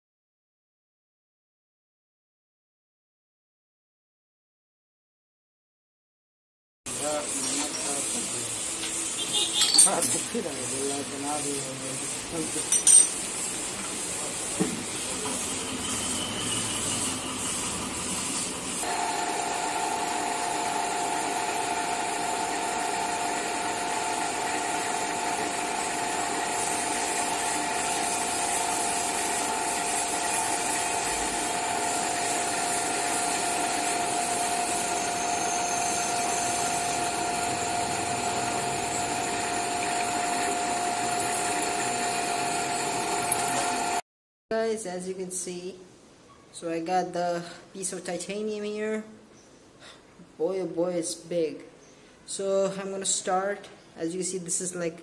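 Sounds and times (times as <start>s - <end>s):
drill press drilling metal: 18.8s - 44.0s.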